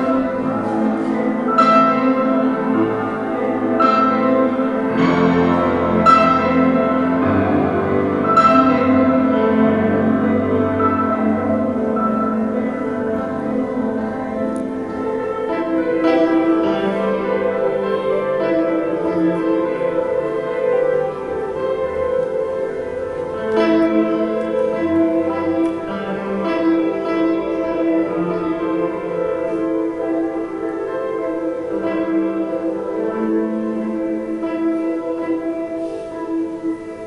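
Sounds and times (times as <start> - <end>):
grand piano chords: 0.0 - 37.0.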